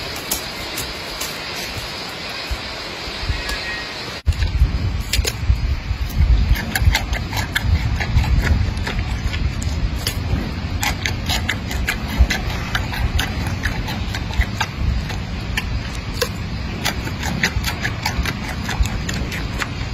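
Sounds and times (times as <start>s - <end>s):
low steady rumble: 0.0s - 19.9s
panda crunching a carrot: 4.3s - 19.9s.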